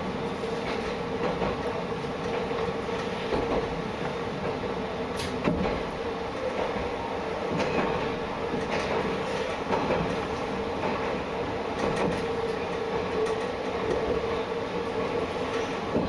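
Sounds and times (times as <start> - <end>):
diesel railcar running hum: 0.0 - 16.0
wheels clicking on rails: 0.5 - 16.0.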